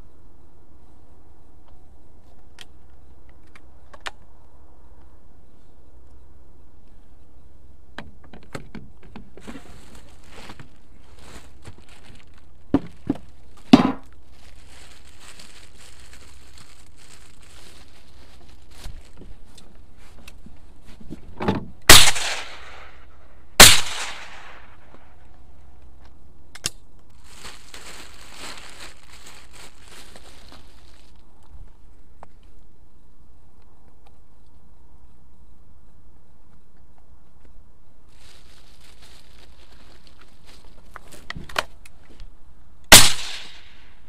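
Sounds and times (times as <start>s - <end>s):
shotgun shots: 21.9s - 23.0s, 23.6s - 24.8s, 42.9s - 43.8s.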